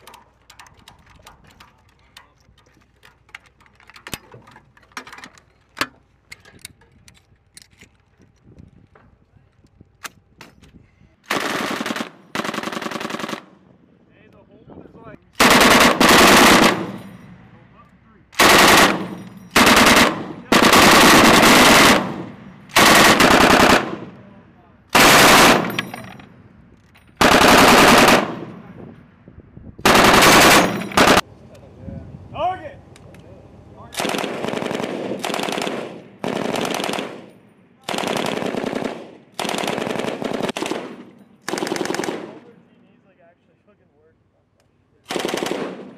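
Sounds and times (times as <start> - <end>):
machine gun bursts: 15.4 - 17.0, 18.4 - 24.0, 25.0 - 25.8, 27.2 - 28.4, 29.9 - 31.2, 34.0 - 37.2, 37.9 - 40.8, 41.5 - 42.2, 45.1 - 45.8.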